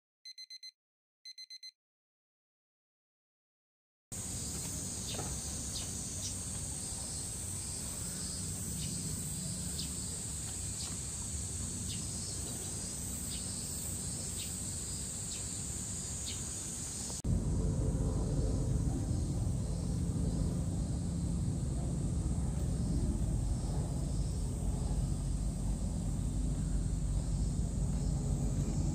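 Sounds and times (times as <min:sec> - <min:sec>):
cicadas droning: 0:04.2 - 0:28.9
loud low rumble: 0:17.2 - 0:28.9.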